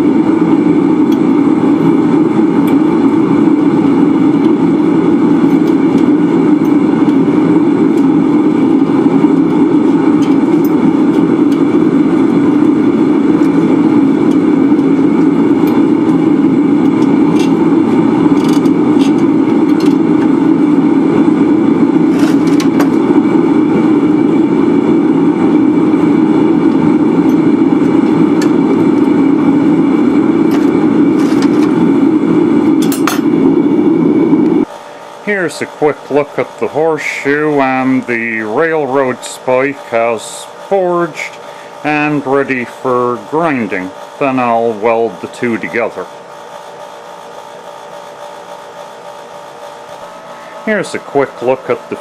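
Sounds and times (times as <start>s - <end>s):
electric motor droning: 0.0s - 52.0s.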